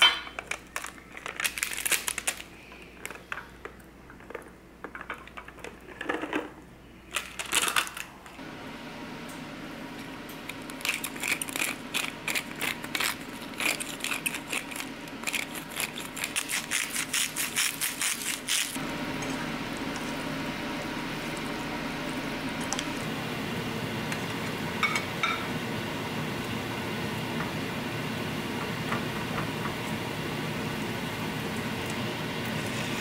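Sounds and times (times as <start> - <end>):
gas stove hiss and hum: 6.4 - 33.0
pepper grinder clicking: 10.4 - 18.8.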